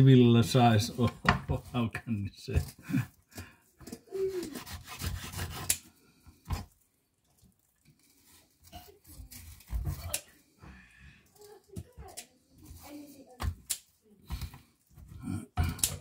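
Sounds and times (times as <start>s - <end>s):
knife scraping on cutting board: 4.3s - 5.9s.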